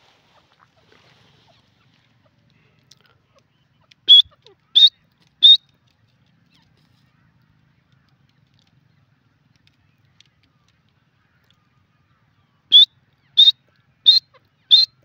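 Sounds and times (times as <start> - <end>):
bird giving sharp high calls: 4.0 - 5.6, 12.7 - 15.0.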